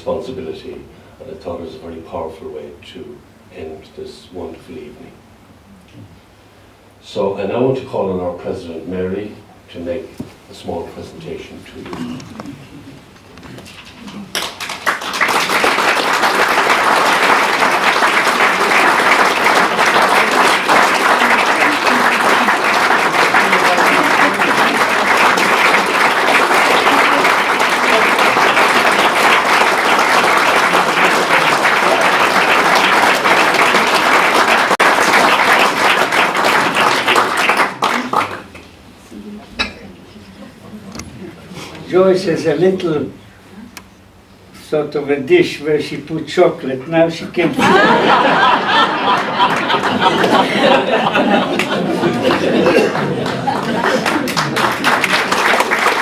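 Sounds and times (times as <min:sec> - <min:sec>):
audience applauding: 0:13.8 - 0:38.6, 0:47.6 - 0:56.0.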